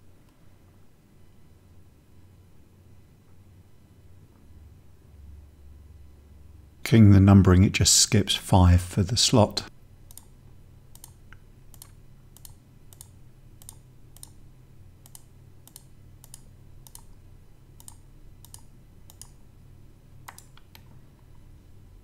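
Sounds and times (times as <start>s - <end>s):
low steady hum: 0.0s - 22.0s
computer mouse clicking: 10.1s - 10.3s, 10.9s - 14.4s, 15.0s - 17.2s, 17.8s - 19.4s, 20.2s - 20.9s.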